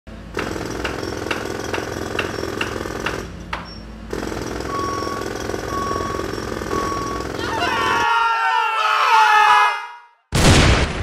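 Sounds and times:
jackhammer hammering: 0.2s - 8.0s.

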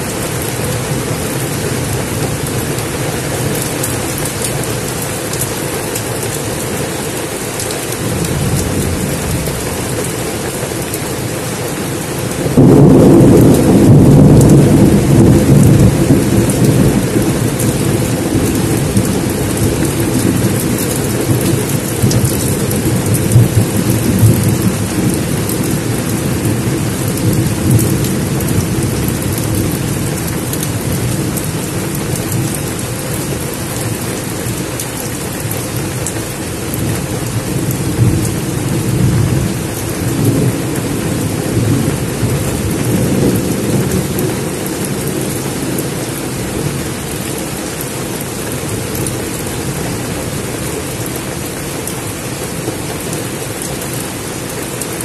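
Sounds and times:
heavy rain on foliage: 0.0s - 55.0s
low rumble: 7.8s - 11.3s.

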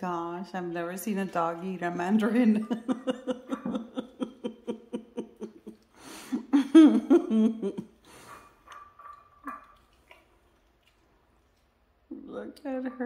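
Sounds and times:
woman laughing: 2.3s - 8.0s.

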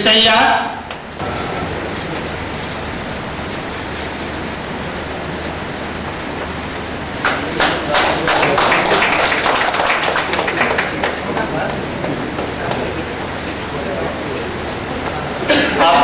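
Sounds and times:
hum of crowded hall: 0.0s - 16.0s
audience clapping: 5.9s - 15.2s.

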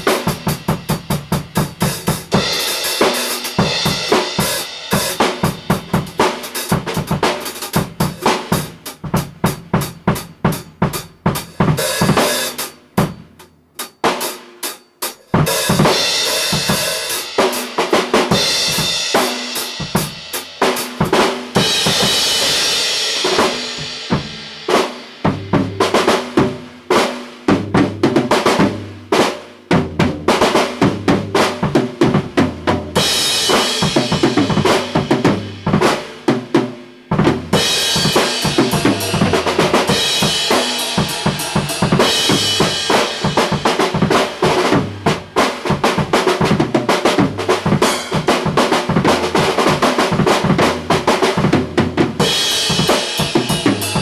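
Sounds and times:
drum kit playing: 0.0s - 54.0s
deep tom hits: 25.3s - 26.7s.

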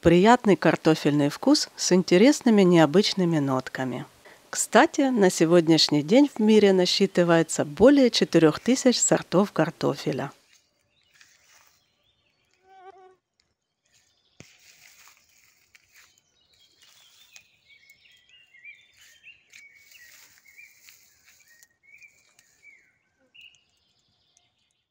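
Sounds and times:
birds chirping and singing: 15.9s - 24.9s.

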